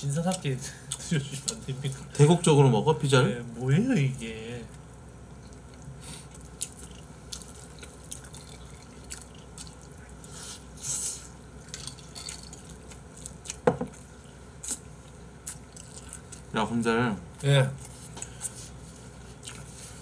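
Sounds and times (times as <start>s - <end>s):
wet chewing and mouth clicks: 5.2s - 10.7s, 11.6s - 16.5s, 19.3s - 20.0s.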